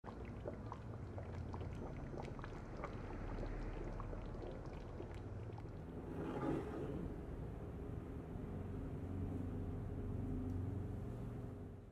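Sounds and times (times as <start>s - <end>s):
sauce bubbling in a pan: 0.0s - 6.8s
low steady hum: 0.1s - 11.9s.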